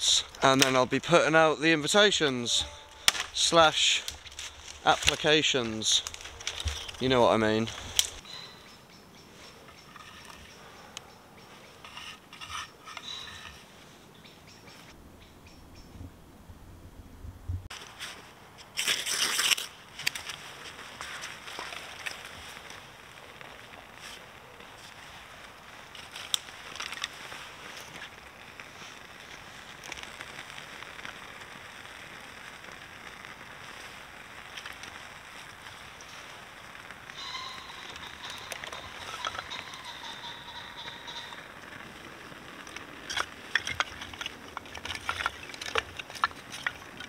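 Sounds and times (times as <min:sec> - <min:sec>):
wood shavings rustling and crackling: 0:00.0 - 0:08.2, 0:17.7 - 0:47.0.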